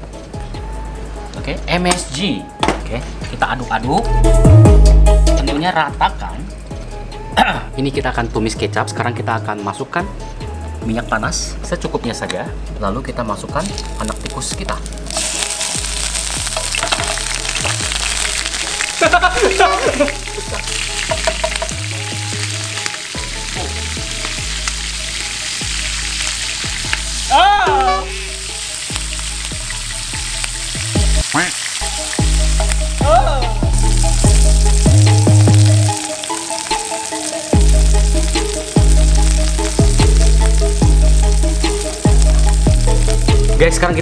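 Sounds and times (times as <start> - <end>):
background music with deep bass: 0.0 - 44.0
oil sizzling in a pan: 13.7 - 43.7.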